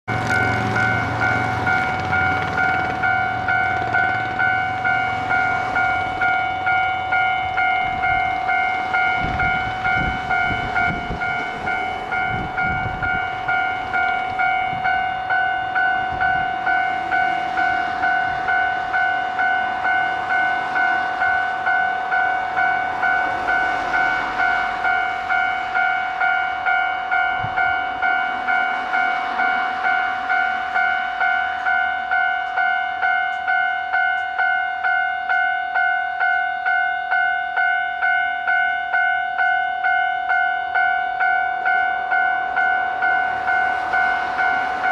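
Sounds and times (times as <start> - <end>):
level crossing warning bell: 0.1 - 44.9.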